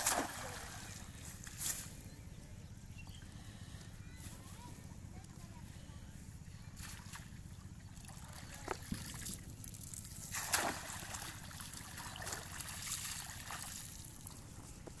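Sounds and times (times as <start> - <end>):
water streaming from net: 0.0 - 1.0, 9.9 - 14.2
water splashing and dripping: 10.2 - 13.9.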